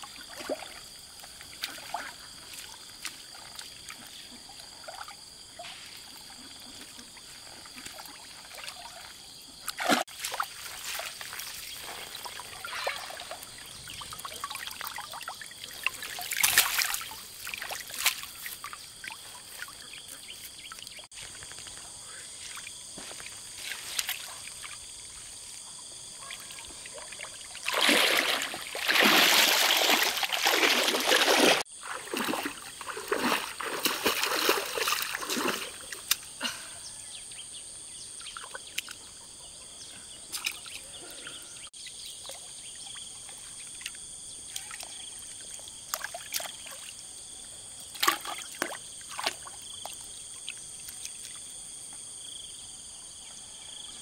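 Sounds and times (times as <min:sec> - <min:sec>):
water splashing from net: 0:09.7 - 0:19.2, 0:26.9 - 0:36.2, 0:47.9 - 0:50.0
water dripping: 0:12.2 - 0:19.8.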